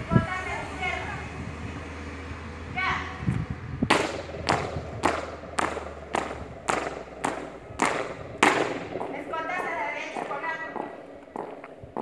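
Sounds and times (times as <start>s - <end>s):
shoes stamping on concrete: 3.3s - 12.0s.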